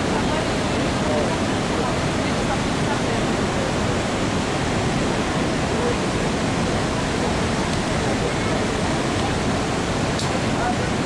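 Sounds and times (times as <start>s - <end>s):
water rushing over waterfall: 0.0s - 11.0s.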